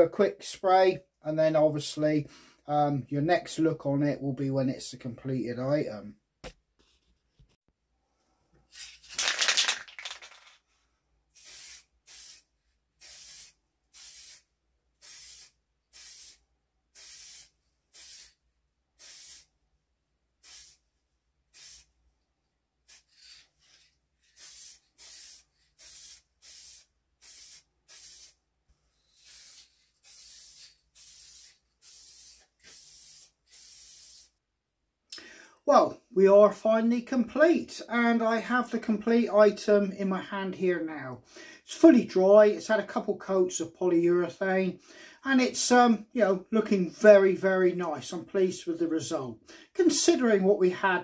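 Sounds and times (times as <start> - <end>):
aerosol spray hissing: 11.4 - 16.4, 17.0 - 18.4, 19.0 - 19.5, 20.4 - 20.8, 21.6 - 21.9, 22.9 - 23.5, 24.3 - 28.4, 29.0 - 34.4.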